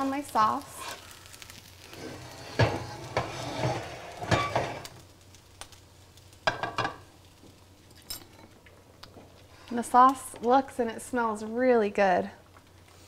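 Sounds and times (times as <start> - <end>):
meat sizzling in a skillet: 0.0 - 8.0
metal clanks of cookware: 2.5 - 4.9.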